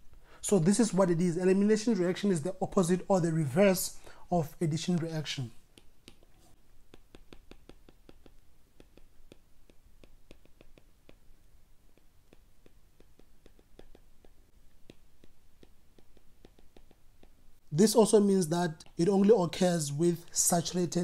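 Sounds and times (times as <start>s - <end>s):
stylus tapping on a tablet: 5.6s - 17.5s.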